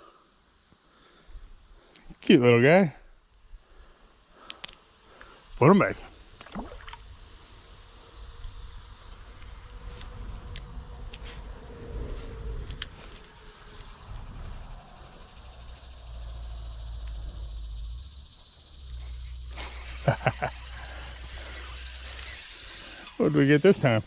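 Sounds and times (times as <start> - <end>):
insects chirring: 0.0 - 24.0
sharp clicks: 4.4 - 4.8, 12.6 - 13.0
low rumble: 7.1 - 19.5.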